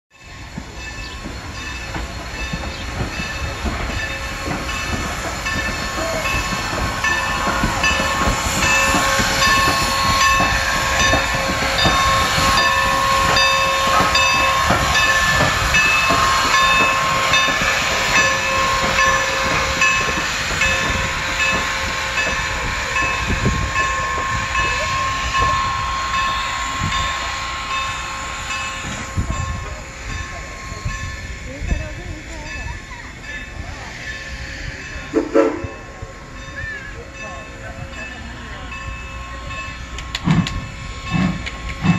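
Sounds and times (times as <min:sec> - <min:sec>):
locomotive bell ringing: 0:00.1 - 0:41.9
steam locomotive passing: 0:00.1 - 0:41.9.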